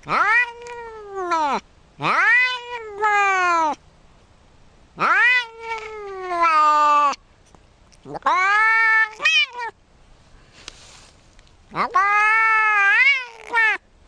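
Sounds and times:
cat meowing: 0.0 - 3.8, 5.0 - 7.2, 8.0 - 9.8, 11.7 - 13.8.

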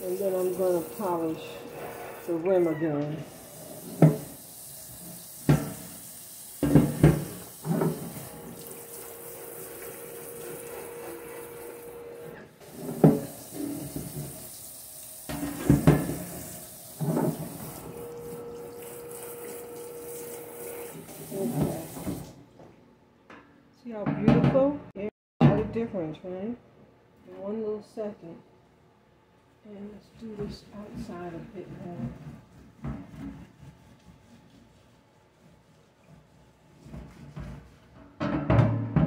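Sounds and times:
tap running into a sink: 3.0 - 11.7, 12.6 - 22.7
metal knocking against a sink: 4.0 - 4.3, 6.6 - 8.0, 15.3 - 16.3, 38.0 - 39.0.

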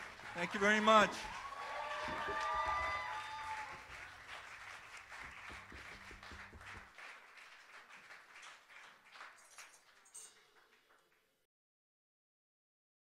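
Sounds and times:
audience applause: 0.0 - 10.1.

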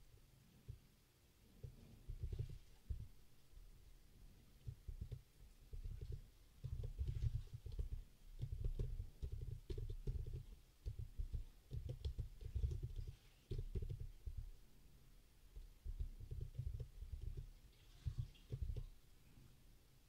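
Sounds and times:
computer keyboard typing: 4.9 - 14.4, 15.8 - 17.5.

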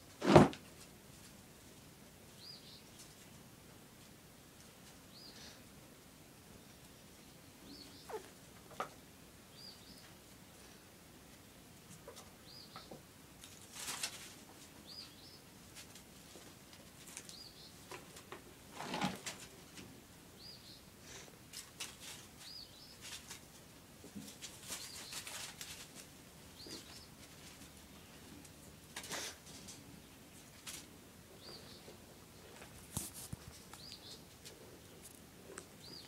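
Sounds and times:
kittens scuffling on gravel: 13.4 - 19.9, 21.4 - 36.0.

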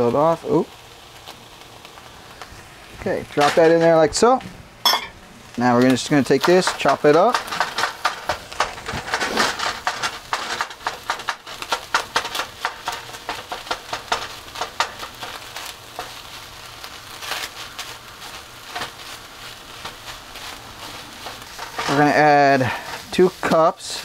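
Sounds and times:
meat sizzling: 0.0 - 24.0
spatula tapping and scraping pan: 6.2 - 16.2, 19.8 - 23.6.

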